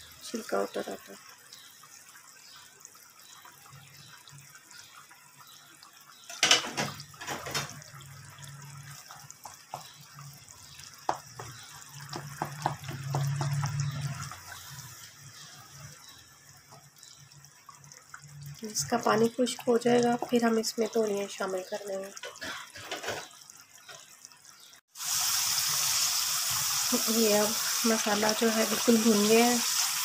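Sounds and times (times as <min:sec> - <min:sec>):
sauce bubbling and sizzling: 0:00.0 - 0:30.0
spatula scraping and tapping: 0:11.0 - 0:14.6.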